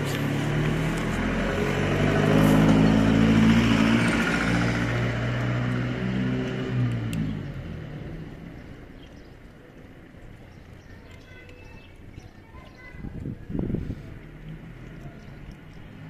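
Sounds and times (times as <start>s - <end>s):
vehicle engine passing by: 0.0s - 9.0s, 13.5s - 16.0s.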